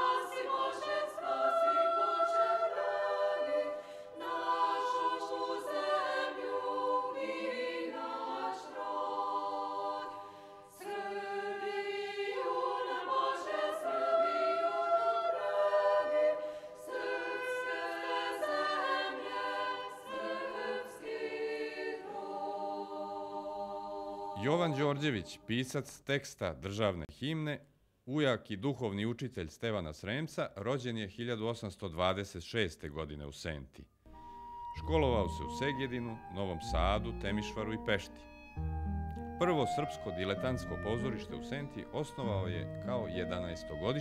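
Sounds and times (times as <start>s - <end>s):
women's choir singing: 0.0s - 25.2s
singers breathing: 3.7s - 4.2s, 10.2s - 10.8s, 16.4s - 16.9s.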